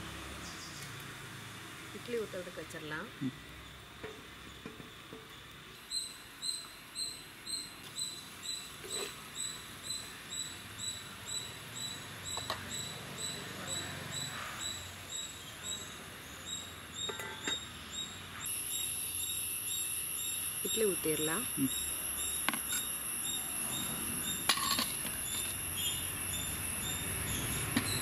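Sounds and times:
pots clinking: 17.0 - 17.7, 24.4 - 25.6.

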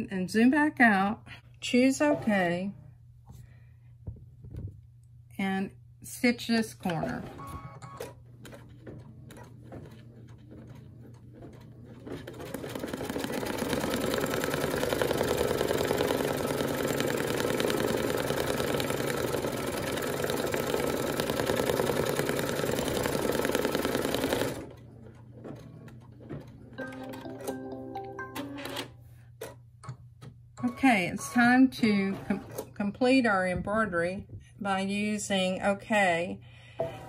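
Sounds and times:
embroidery machine stitching: 7.3 - 26.8.

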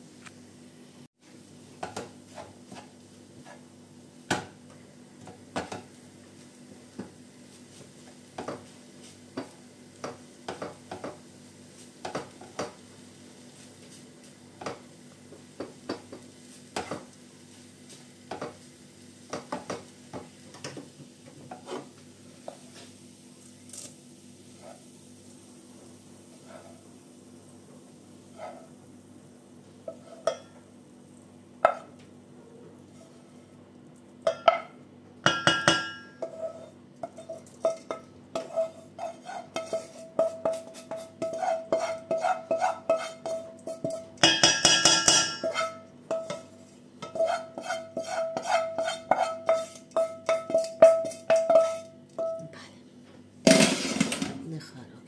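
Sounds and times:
spoon scraping and clinking on pans: 29.9 - 30.6, 34.2 - 52.4.

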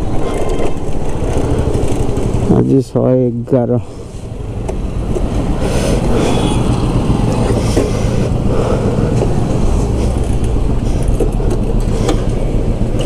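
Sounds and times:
motorcycle engine running: 0.0 - 3.2, 3.9 - 13.0
road and wind noise: 0.0 - 13.0.

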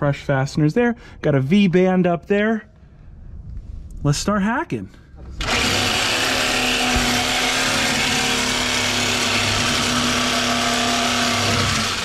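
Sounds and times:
reciprocating saw cutting metal: 5.4 - 12.0.

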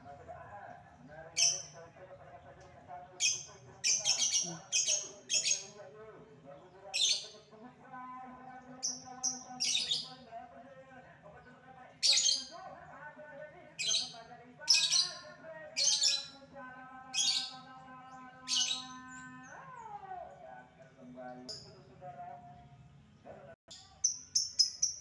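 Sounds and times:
lovebird chirping: 1.4 - 1.8, 3.2 - 5.8, 23.7 - 25.0.

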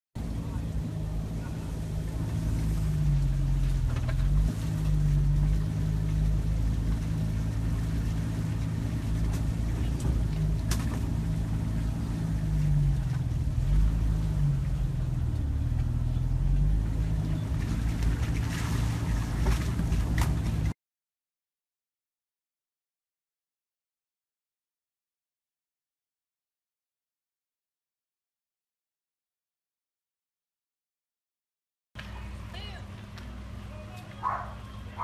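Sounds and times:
car engine running: 0.2 - 20.8, 32.0 - 35.0
road rumble: 0.2 - 20.8, 32.0 - 35.0.

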